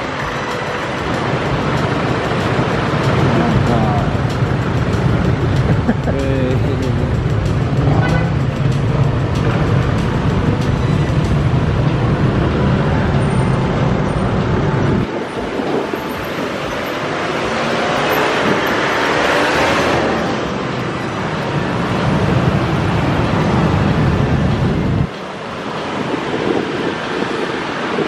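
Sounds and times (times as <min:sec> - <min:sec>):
motorcycle low rumble: 0:00.0 - 0:17.8
broad rushing road noise: 0:00.0 - 0:28.0.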